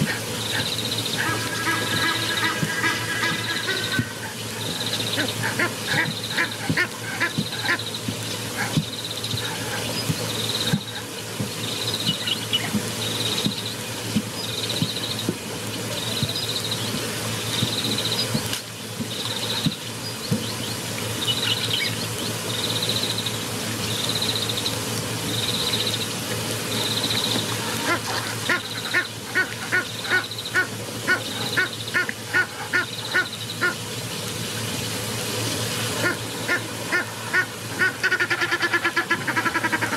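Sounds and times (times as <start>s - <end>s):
high animal calls: 0.0s - 7.8s
steady low hum: 0.0s - 39.9s.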